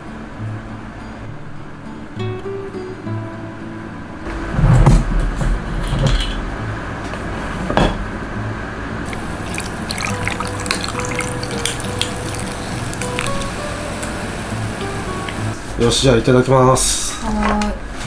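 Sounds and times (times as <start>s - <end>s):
sparkling water fizzing: 9.0s - 15.6s
drinks poured over ice: 9.1s - 13.8s
ice crackling: 9.1s - 14.2s.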